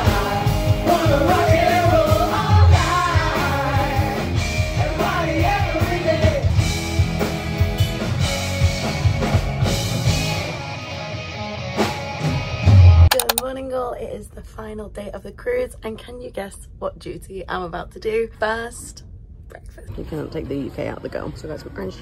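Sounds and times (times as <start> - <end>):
rock music drum beat: 0.0 - 10.3.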